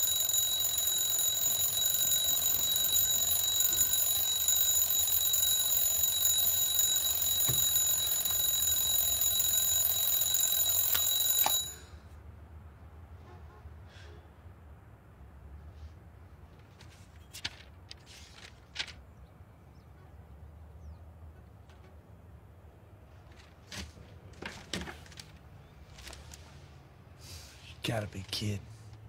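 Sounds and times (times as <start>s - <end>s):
alarm clock ringing: 0.0s - 12.0s.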